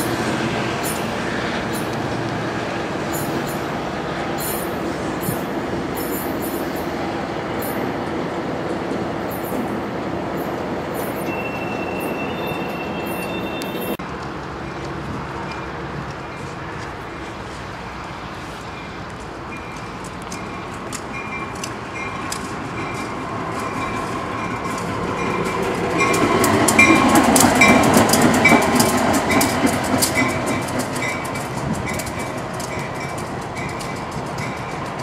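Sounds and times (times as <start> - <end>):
diesel locomotive engine passing: 0.0 - 35.0
high ringing: 11.0 - 14.0
wheels clicking over rail joints: 13.3 - 35.0.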